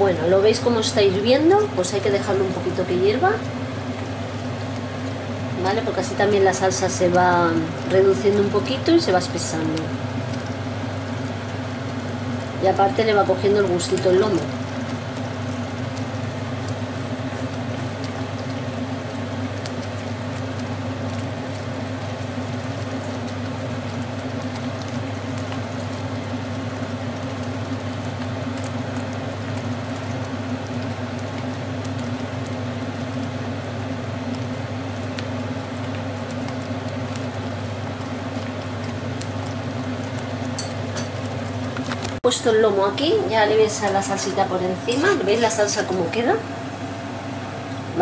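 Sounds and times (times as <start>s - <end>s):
sauce bubbling and spitting: 14.4s - 42.2s.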